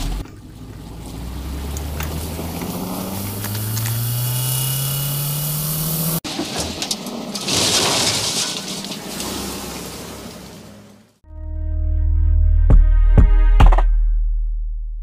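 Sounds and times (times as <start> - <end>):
car engine revving: 0.0 - 6.2.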